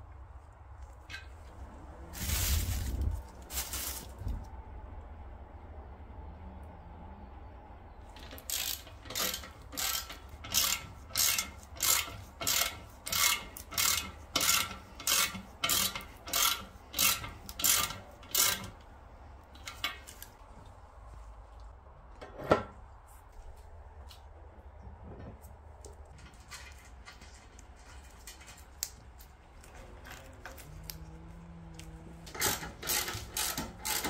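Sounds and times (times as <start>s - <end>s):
ratchet wrench rasping: 8.2s - 18.8s, 32.3s - 34.0s.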